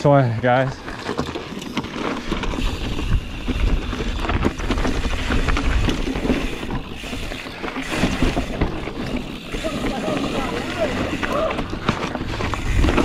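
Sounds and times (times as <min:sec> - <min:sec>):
bike rattles and knocks: 0:00.0 - 0:13.0
bike tyre noise on dirt: 0:00.0 - 0:13.0
wind buffeting microphone: 0:02.4 - 0:13.0.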